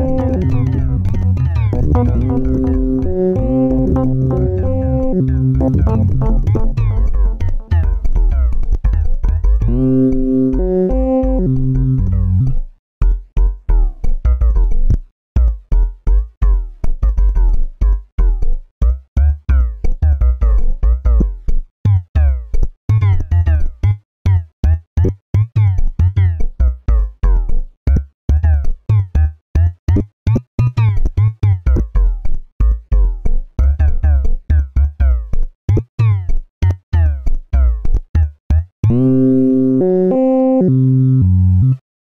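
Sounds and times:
held synthesizer notes: 0:00.0 - 0:08.1, 0:09.7 - 0:12.5, 0:38.8 - 0:41.8
stuttering synth stabs: 0:00.0 - 0:08.1
deep bass hits: 0:00.0 - 0:08.6.

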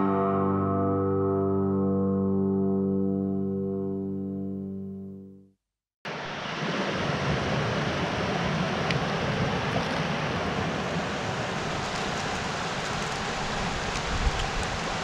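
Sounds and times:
creek flowing over rocks: 0:06.1 - 0:15.0.

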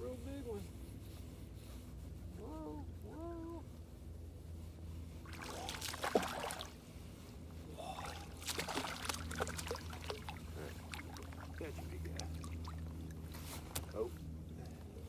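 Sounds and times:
fish splashing at surface: 0:05.3 - 0:06.8, 0:08.0 - 0:11.6.

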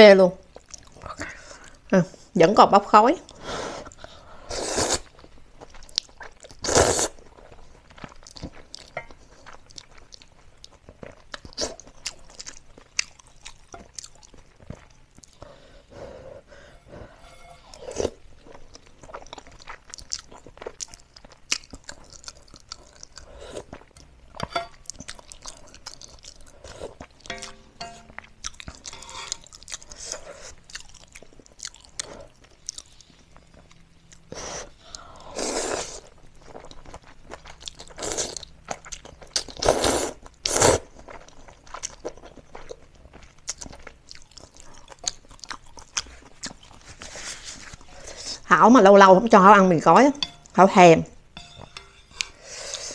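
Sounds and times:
chewing: 0:00.5 - 0:01.8, 0:04.9 - 0:16.7, 0:18.1 - 0:48.5
utensils clicking on metal pan: 0:27.3 - 0:28.2, 0:50.2 - 0:50.6, 0:51.4 - 0:52.4.

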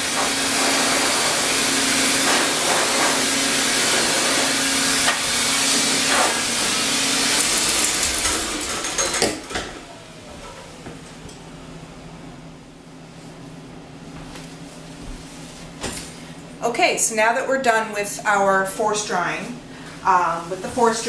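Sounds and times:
force dryer blasting air: 0:00.0 - 0:10.3
motor winding down whine: 0:04.4 - 0:10.2.

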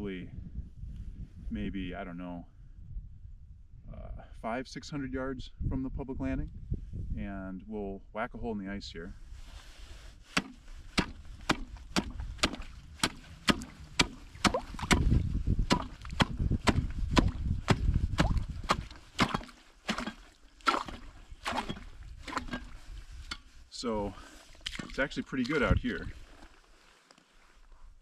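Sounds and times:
ice chisel striking ice: 0:15.7 - 0:22.7.

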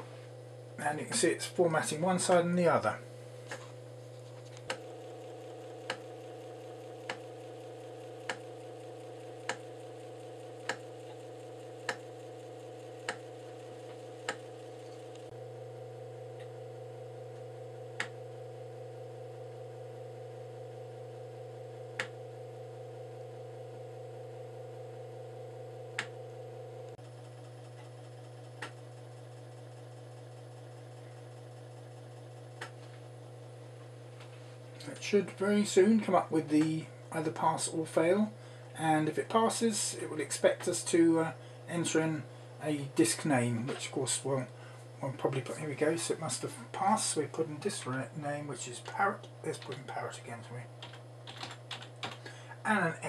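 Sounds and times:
floppy disk drive motor hum: 0:00.0 - 0:53.0
disk drive head clicking: 0:04.4 - 0:15.3, 0:18.0 - 0:18.2.

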